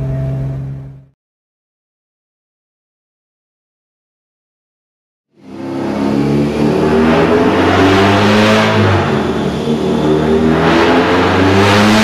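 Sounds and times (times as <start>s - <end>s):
engine running hard: 0.0s - 1.1s, 5.4s - 12.0s.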